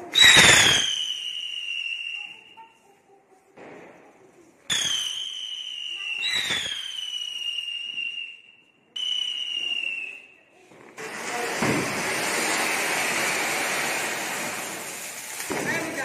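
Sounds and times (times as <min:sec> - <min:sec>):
firework fountain hissing: 0:00.0 - 0:02.5, 0:09.0 - 0:16.0
whistling firecrackers: 0:00.0 - 0:02.8, 0:04.7 - 0:16.0.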